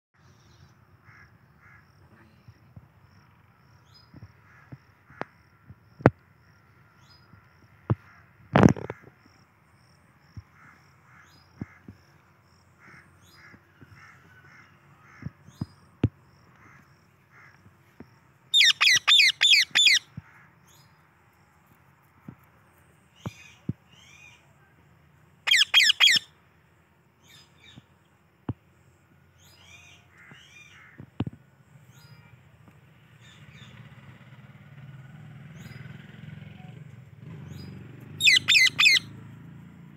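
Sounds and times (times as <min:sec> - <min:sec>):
parakeet screeching: 0:18.6 - 0:20.1, 0:25.4 - 0:26.3, 0:38.2 - 0:39.1
faint high chirp: 0:36.5 - 0:39.2.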